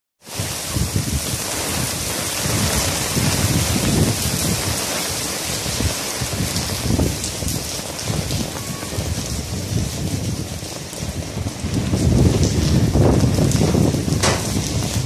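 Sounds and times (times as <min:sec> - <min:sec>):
rain falling on street: 0:00.2 - 0:15.0
low rumbling: 0:11.4 - 0:15.0.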